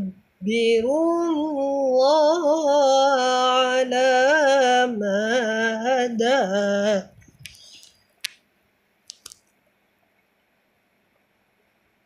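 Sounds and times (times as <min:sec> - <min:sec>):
man reciting melodically: 0:00.0 - 0:07.8
low room hiss: 0:00.0 - 0:12.0
faint short clicks: 0:09.1 - 0:09.5.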